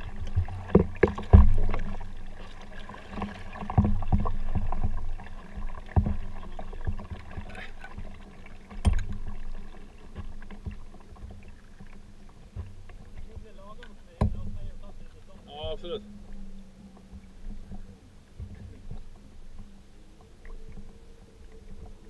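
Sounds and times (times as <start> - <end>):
paddle splashes: 0.0 - 22.0
knocks against kayak hull: 0.4 - 1.9, 8.7 - 9.3, 12.5 - 14.8.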